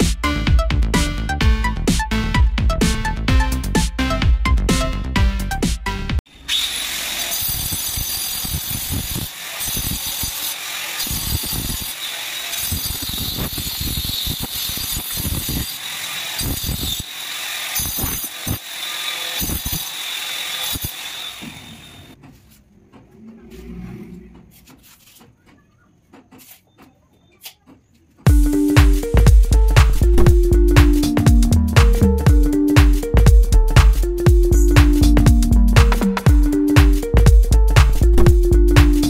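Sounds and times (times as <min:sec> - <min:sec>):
angle grinder cutting tile: 0:06.3 - 0:22.2.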